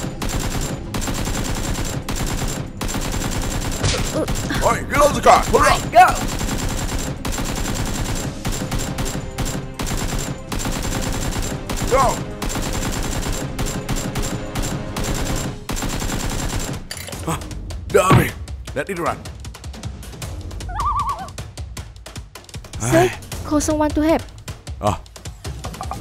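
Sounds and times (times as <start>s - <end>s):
automatic gunfire: 0.0s - 16.9s
people shouting: 4.5s - 6.3s, 11.8s - 12.2s.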